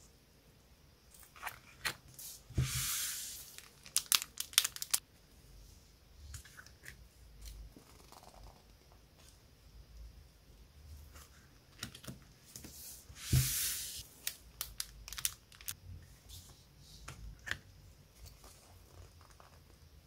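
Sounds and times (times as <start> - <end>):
paper edges clicking and flicking: 3.4 - 5.0
paper sheets leafed through: 12.6 - 14.4.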